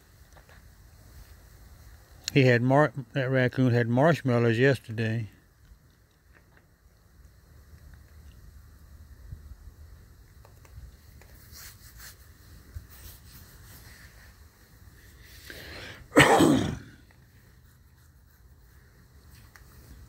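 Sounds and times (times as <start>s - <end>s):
drawn-in breath: 15.1s - 16.1s
person sneezing: 15.8s - 17.0s.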